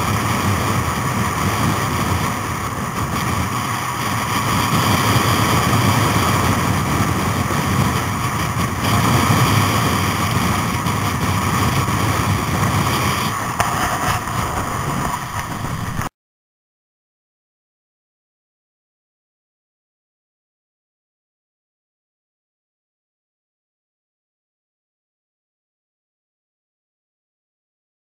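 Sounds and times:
motorcycle engine running: 0.0s - 16.1s
wind rush on microphone: 0.0s - 16.1s.

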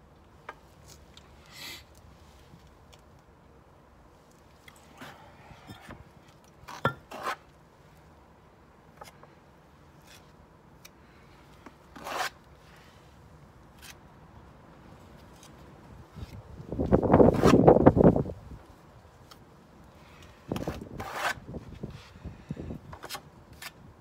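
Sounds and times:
trowel scraping mortar: 6.7s - 7.5s, 12.0s - 12.4s, 20.6s - 21.4s.

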